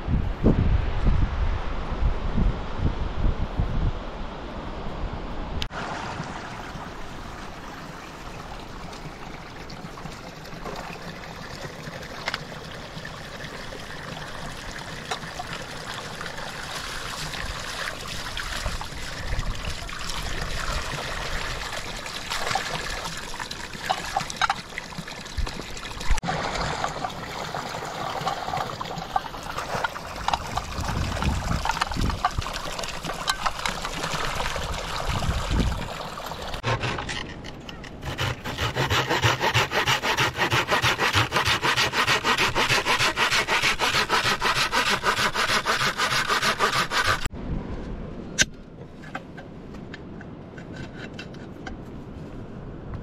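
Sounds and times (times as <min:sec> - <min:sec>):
water running from pipe into trough: 0:08.8 - 0:36.7, 0:38.0 - 0:47.3.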